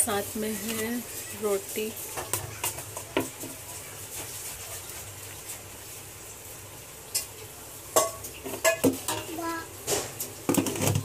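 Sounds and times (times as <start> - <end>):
room tone hiss: 0.0 - 10.9.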